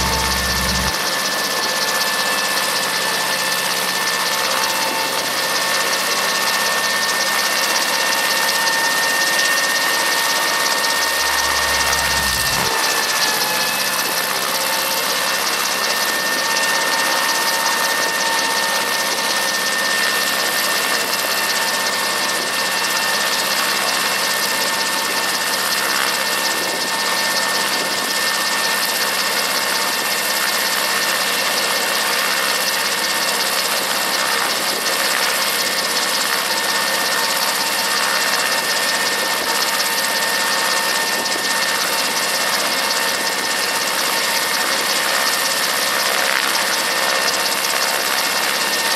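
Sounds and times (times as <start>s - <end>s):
high whine: 0.0s - 5.8s, 10.1s - 16.0s
helicopter piston engine running: 0.0s - 48.9s.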